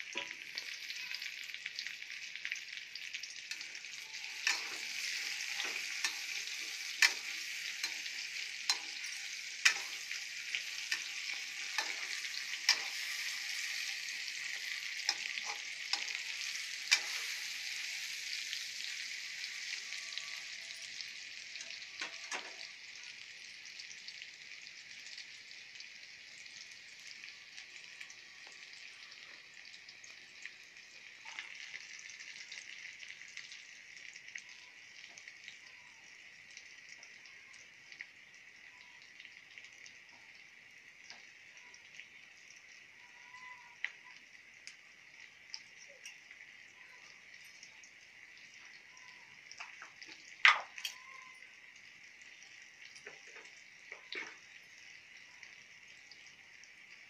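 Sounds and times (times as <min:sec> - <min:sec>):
food sizzling in hot oil: 0:00.0 - 0:57.0
metal spoon scraping a pan: 0:03.5 - 0:17.6.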